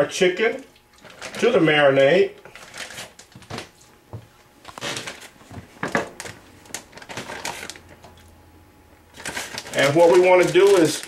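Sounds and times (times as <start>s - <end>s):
plastic bag crinkling: 0.9s - 3.8s, 4.6s - 5.4s, 6.1s - 8.2s, 9.1s - 11.0s.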